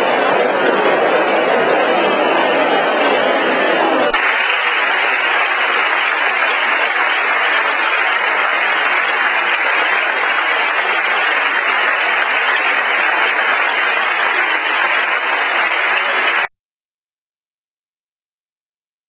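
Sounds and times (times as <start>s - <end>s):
audience applauding: 4.1s - 16.5s.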